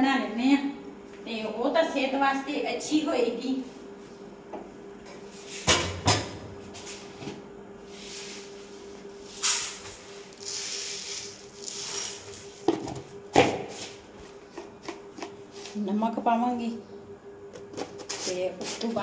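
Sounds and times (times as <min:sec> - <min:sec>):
sugar pouring into pot: 0:10.3 - 0:12.4.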